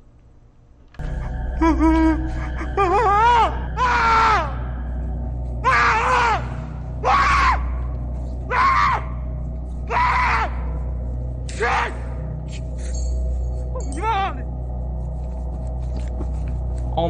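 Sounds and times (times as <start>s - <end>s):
steady low hum: 0.0s - 8.5s
man screaming in fright: 2.7s - 4.6s, 5.6s - 7.8s, 8.5s - 9.2s, 9.8s - 10.8s.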